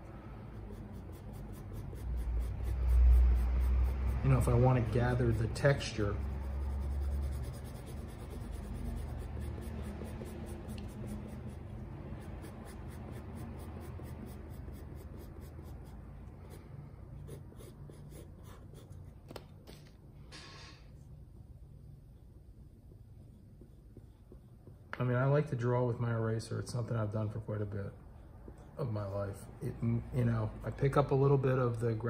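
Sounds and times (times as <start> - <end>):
pencil scratching on paper: 0.4 - 19.2.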